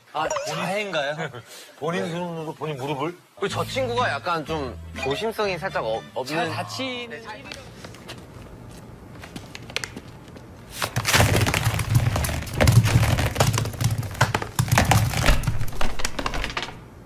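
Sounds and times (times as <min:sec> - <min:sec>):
lemons bouncing on hard floor: 0:10.8 - 0:16.8.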